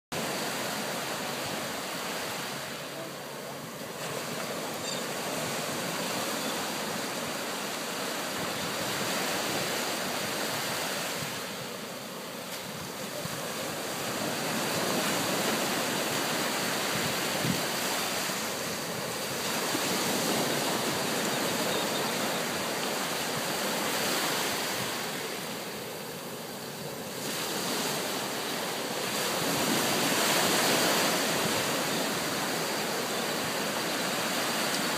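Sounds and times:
waves washing up a beach: 0:00.1 - 0:34.9.

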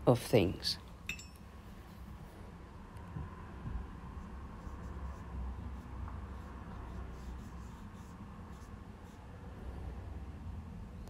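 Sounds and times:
brush strokes on paper: 0:04.1 - 0:09.9.

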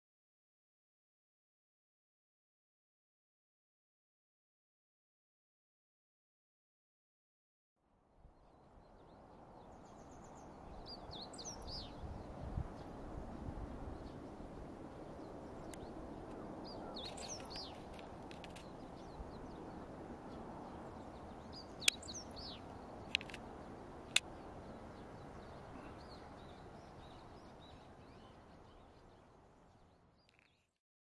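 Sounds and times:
steady outdoor hiss: 0:07.9 - 0:30.8
songbird chirping: 0:08.3 - 0:30.8
sharp clicks: 0:23.1 - 0:23.4.

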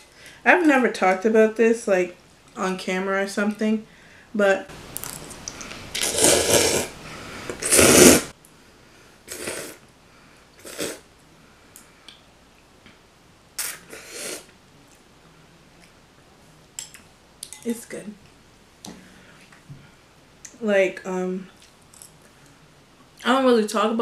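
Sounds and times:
person slurping noodles: 0:05.9 - 0:07.0, 0:07.6 - 0:08.3, 0:09.3 - 0:09.8, 0:10.6 - 0:11.0, 0:13.6 - 0:14.5.

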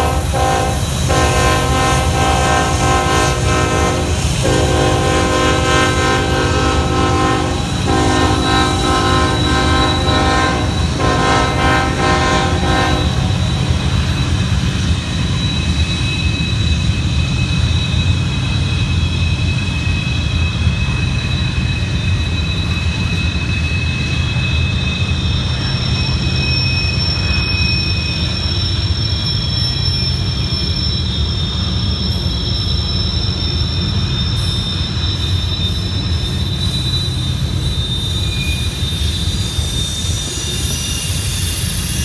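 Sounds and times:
train air horn blasts: 0:00.0 - 0:14.4
high wheel squeal: 0:00.0 - 0:42.0
low rumble of passing train: 0:00.0 - 0:42.0.

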